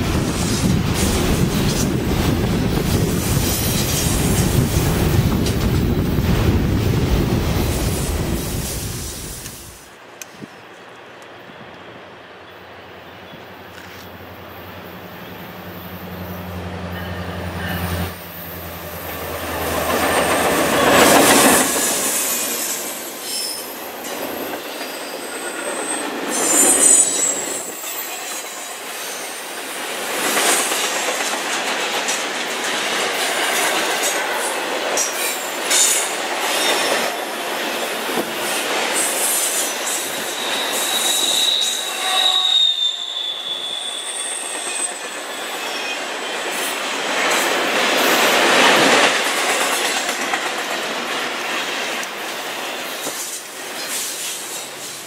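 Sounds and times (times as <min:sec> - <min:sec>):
train wheels clicking on rails: 0:00.0 - 0:10.5, 0:17.0 - 0:41.8, 0:44.5 - 0:55.0
locomotive engine hum: 0:10.0 - 0:21.2
high wheel squeals: 0:19.8 - 0:29.6, 0:39.2 - 0:46.6.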